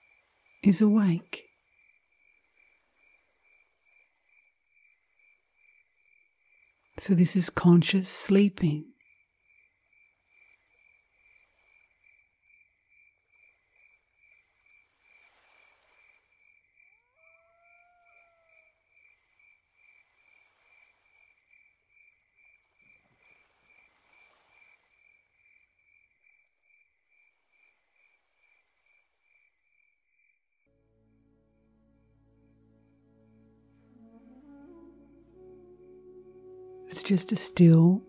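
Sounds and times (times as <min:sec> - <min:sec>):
crickets chirping: 0:00.0 - 0:07.5, 0:09.0 - 0:38.0
faint gliding call: 0:17.0 - 0:18.7, 0:32.0 - 0:38.0.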